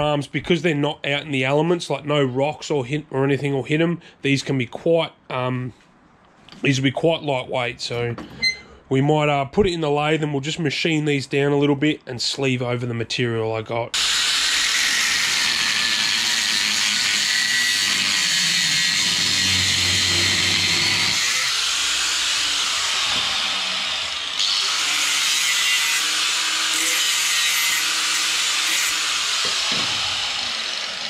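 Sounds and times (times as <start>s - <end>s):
angle grinder cutting steel: 14.0s - 31.0s.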